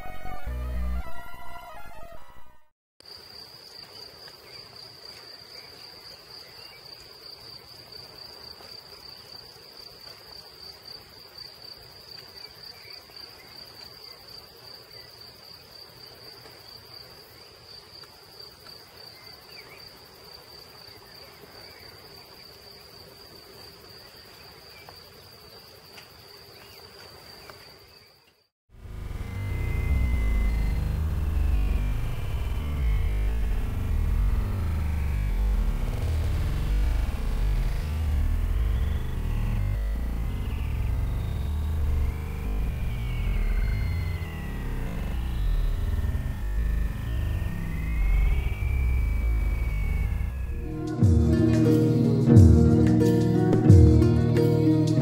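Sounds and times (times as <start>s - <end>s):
faint low hum: 28.8s - 51.0s
high-pitched insect chirring: 29.2s - 50.7s.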